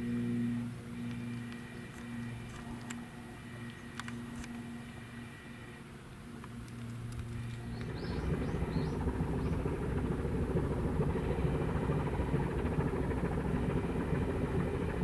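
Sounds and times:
ship engine rumble: 0.0 - 15.0
bird chirping: 7.4 - 9.7.

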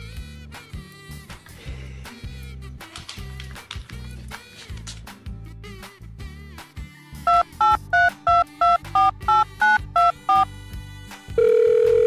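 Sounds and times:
two-tone keypad beeps: 7.3 - 10.5
steady phone line tone: 11.4 - 12.0.

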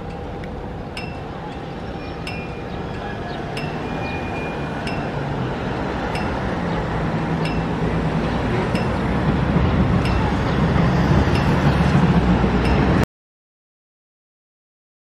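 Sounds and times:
city traffic hum: 0.0 - 13.0
clinking tick: 6.1 - 6.4.

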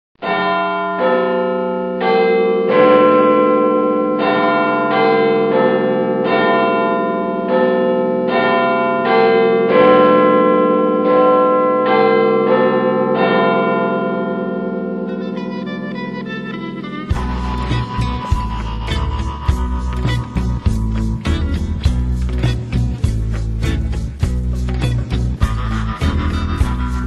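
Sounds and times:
bells chiming: 0.2 - 27.0.

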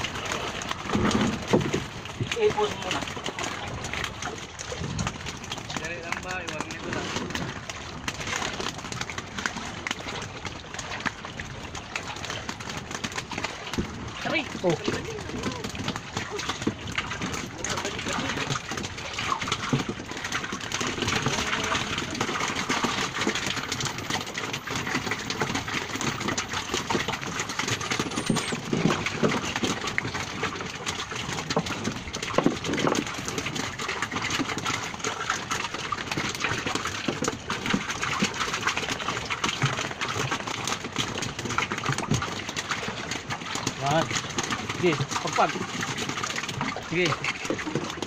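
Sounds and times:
fish flapping and slapping: 0.0 - 48.0
sea wash: 0.0 - 48.0
bamboo trap rattling: 12.2 - 48.0.

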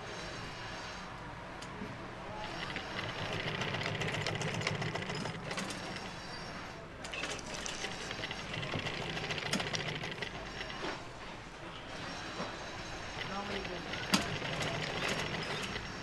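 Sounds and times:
sewing machine running: 2.3 - 6.4, 7.1 - 16.0.

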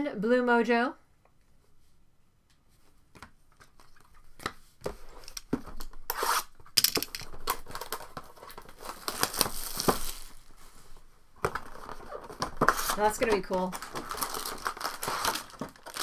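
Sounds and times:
wrapper tearing and crinkling: 6.2 - 10.6, 11.5 - 16.0.

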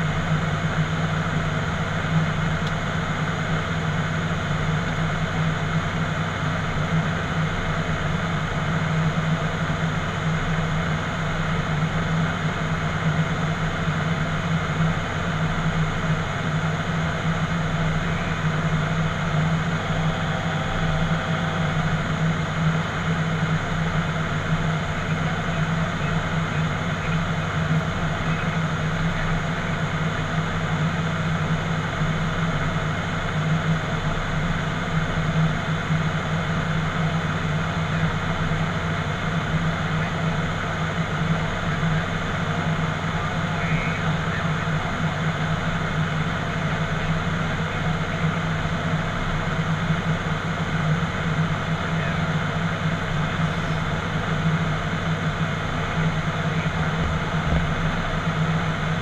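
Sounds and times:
turboprop engines droning: 0.0 - 59.0.

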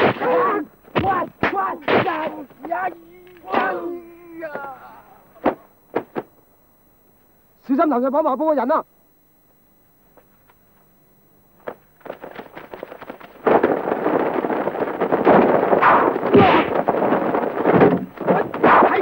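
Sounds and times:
clatter of bangs and cracks: 11.6 - 19.0.

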